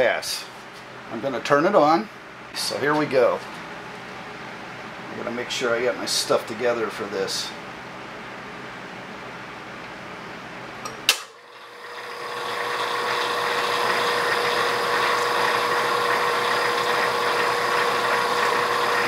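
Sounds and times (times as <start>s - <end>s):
lathe motor whine: 11.4s - 19.0s.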